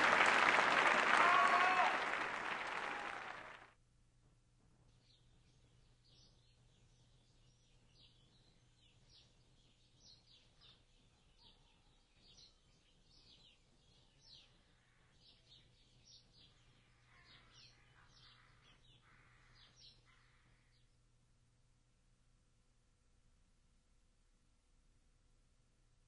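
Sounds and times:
faint bird chirping: 0:04.8 - 0:21.2.

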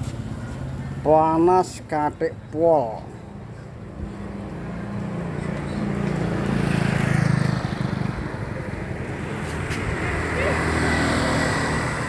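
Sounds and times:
vehicle engine passing: 0:04.0 - 0:12.0.

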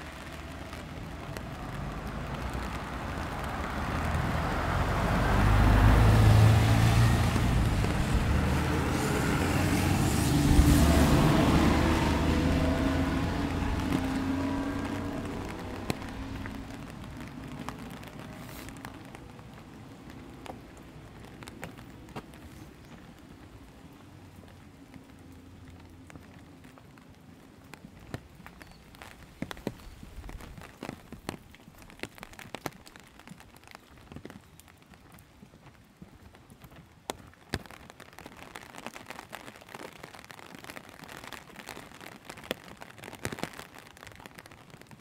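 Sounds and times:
tyre hiss on wet road: 0:00.0 - 0:24.5
truck engine rumble: 0:00.0 - 0:30.4
light rain: 0:00.0 - 0:45.0.

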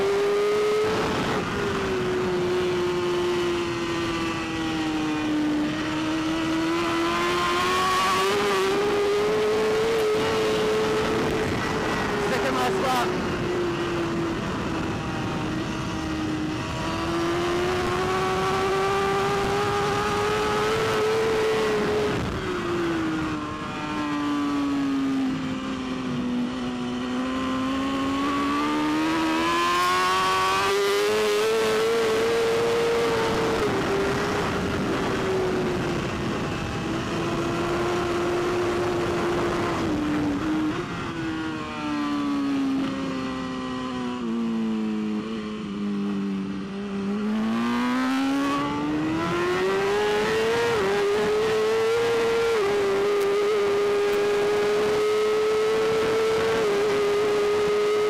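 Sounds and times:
wind rush: 0:00.0 - 0:26.7, 0:27.7 - 0:43.4
motorcycle engine revving: 0:00.0 - 0:58.0.

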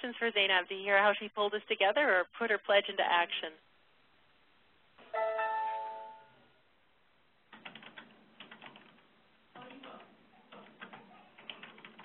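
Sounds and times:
electronic chime: 0:05.2 - 0:06.5
computer keyboard typing: 0:07.5 - 0:09.0, 0:09.6 - 0:12.0.

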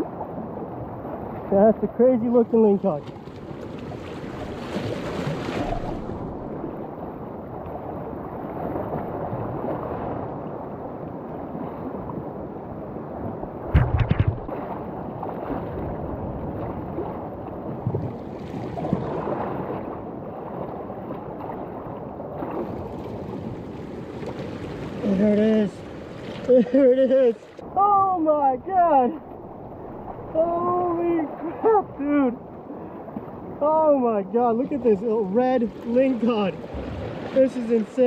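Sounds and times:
seawater rushing: 0:00.0 - 0:38.0
wind buffeting microphone: 0:03.1 - 0:33.6
loud knocks: 0:13.7 - 0:14.5.

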